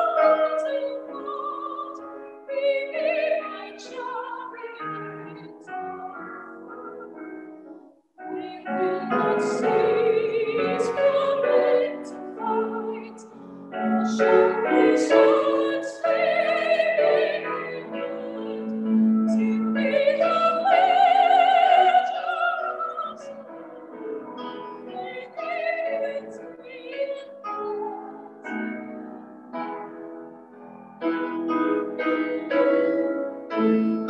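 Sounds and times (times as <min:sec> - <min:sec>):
woman singing a hymn: 0:00.0 - 0:06.9, 0:08.2 - 0:23.5, 0:24.7 - 0:28.3
piano accompaniment: 0:00.0 - 0:34.0.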